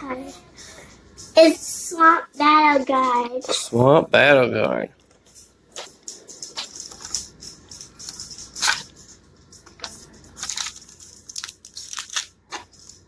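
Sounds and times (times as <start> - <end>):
plastic and cardboard rustling: 5.8 - 13.0.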